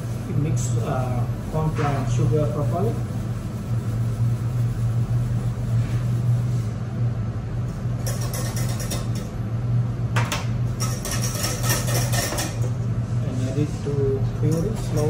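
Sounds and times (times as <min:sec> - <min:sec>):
utensil scraping in a saucepan: 0:00.0 - 0:06.7, 0:07.8 - 0:09.3, 0:10.7 - 0:12.7, 0:14.4 - 0:15.0
low machine hum: 0:00.0 - 0:15.0.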